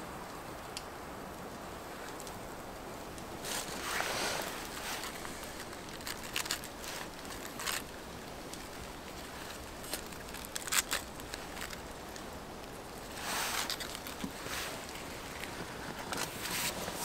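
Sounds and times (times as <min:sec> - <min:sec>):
background hiss: 0:00.0 - 0:17.0
lettuce leaves tearing: 0:03.4 - 0:17.0.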